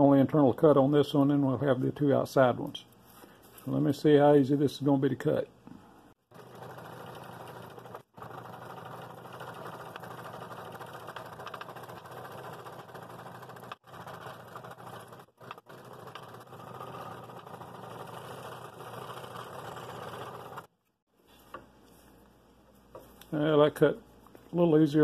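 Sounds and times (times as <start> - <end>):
scroll saw cutting wood: 6.3 - 20.7.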